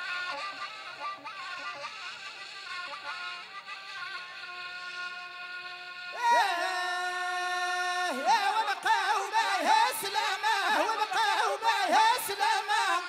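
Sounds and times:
man singing ornamented melody: 0:04.1 - 0:13.0.

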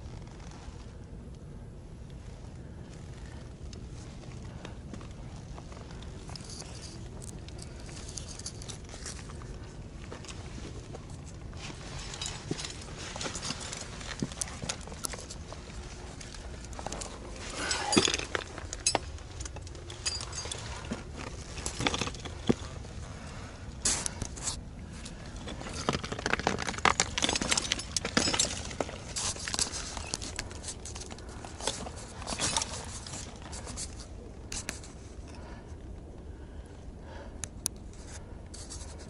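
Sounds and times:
metal gear clinking on rock: 0:05.9 - 0:09.6, 0:11.1 - 0:23.2, 0:23.8 - 0:34.0.

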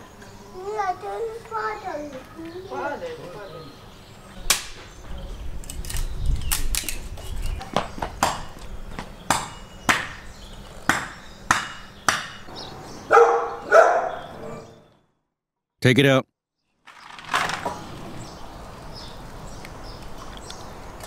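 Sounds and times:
hatchet chopping firewood: 0:09.3 - 0:12.5.

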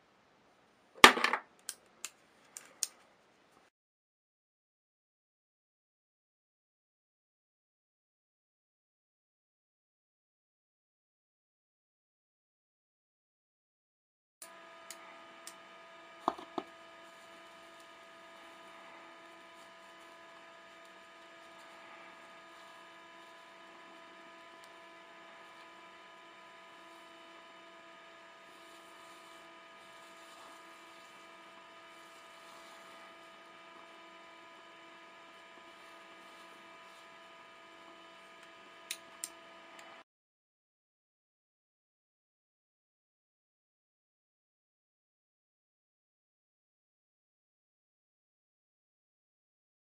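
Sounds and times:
low electrical hum: 0:14.4 - 0:40.0.

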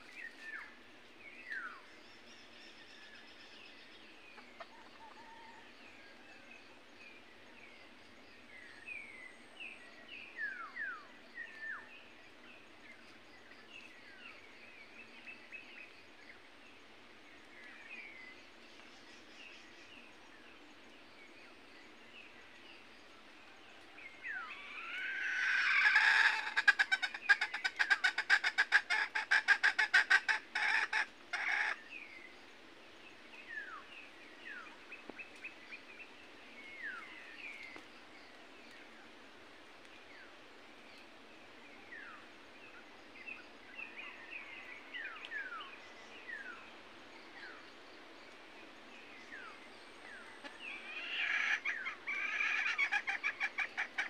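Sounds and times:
junglefowl squawking and rattling: 0:24.9 - 0:31.8, 0:50.4 - 0:54.0.

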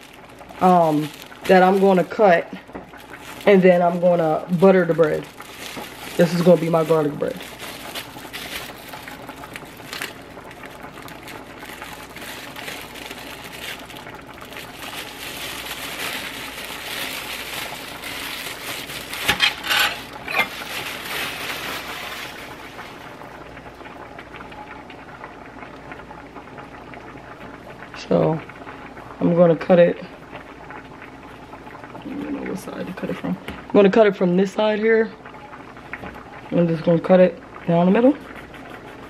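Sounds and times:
plastic bread bag crinkling: 0:00.0 - 0:24.0
pot of water bubbling: 0:00.0 - 0:39.0.

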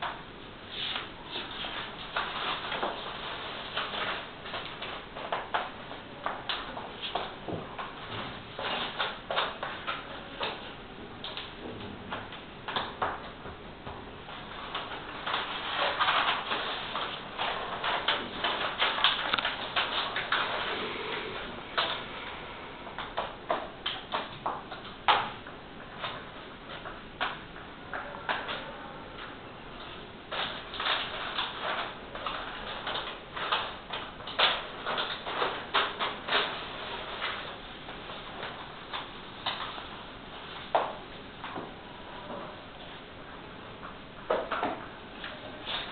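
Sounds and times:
sheet rustling: 0:00.6 - 0:05.7, 0:14.2 - 0:22.2
squeegee scraping on sheet: 0:00.7 - 0:05.5
plastic sheet clicking and crackling: 0:00.9 - 0:20.7, 0:21.4 - 0:22.1, 0:22.9 - 0:41.7, 0:43.8 - 0:45.9.

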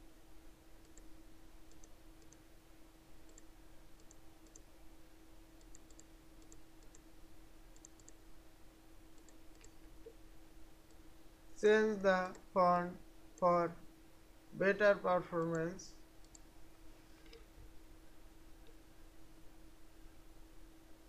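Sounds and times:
low electrical hum: 0:00.0 - 0:21.0
computer mouse clicks: 0:00.8 - 0:01.1, 0:01.7 - 0:02.4, 0:03.2 - 0:04.7, 0:05.6 - 0:07.1, 0:07.7 - 0:08.2, 0:09.1 - 0:10.2, 0:16.2 - 0:16.5, 0:17.2 - 0:17.5.

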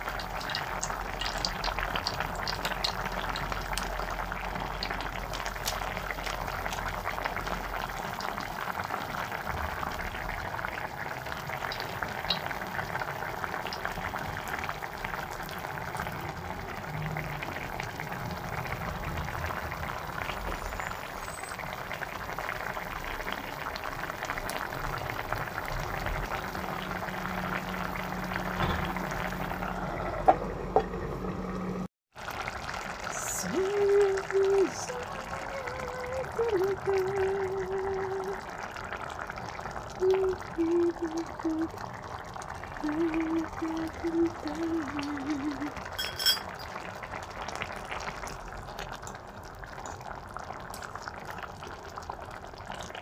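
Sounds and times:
sauce bubbling in a pot: 0:00.0 - 0:53.0.

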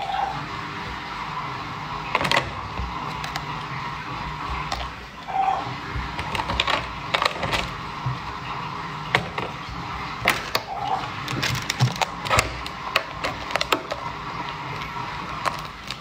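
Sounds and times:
scraping and knocks: 0:05.8 - 0:08.5
fibrous husk cracking and snapping: 0:10.2 - 0:16.0.

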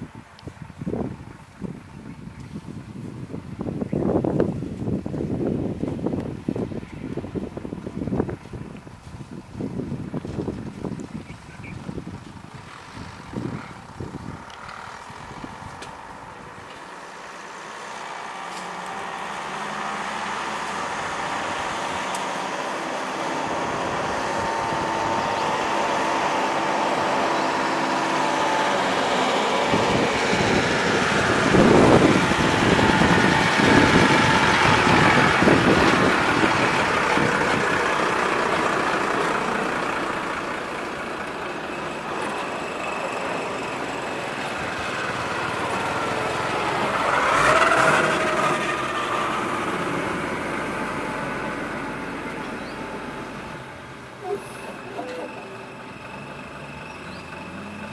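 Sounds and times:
vehicle passing on road: 0:00.0 - 0:57.9.

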